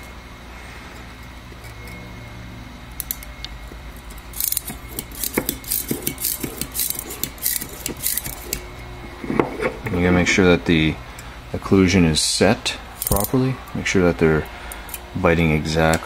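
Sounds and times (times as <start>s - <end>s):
metal clamp clicking and scraping: 4.0s - 8.6s, 13.0s - 13.4s.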